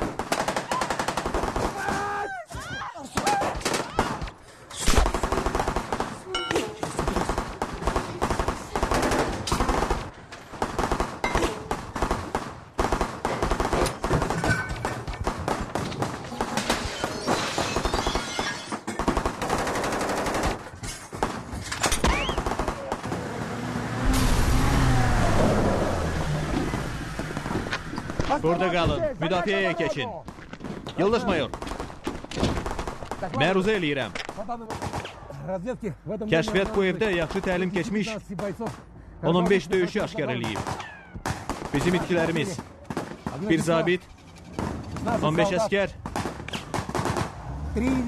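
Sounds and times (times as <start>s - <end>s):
machine-gun fire: 5.0s - 6.2s, 6.9s - 16.8s, 22.1s - 23.3s, 31.0s - 33.4s, 46.0s - 47.5s
jeep engine rumbling: 23.1s - 29.2s.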